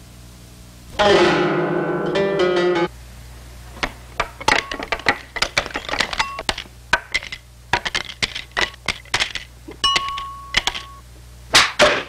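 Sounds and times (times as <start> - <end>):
cards clacking onto a table: 3.8 - 10.9.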